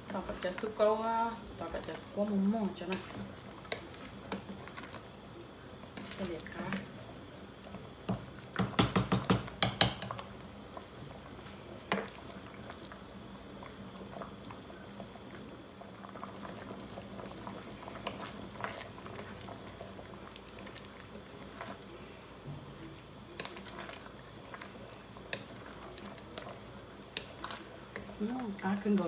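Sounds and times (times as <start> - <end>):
soup bubbling in a pan: 0.0 - 29.0
wooden spatula knocking a pan: 8.1 - 10.1.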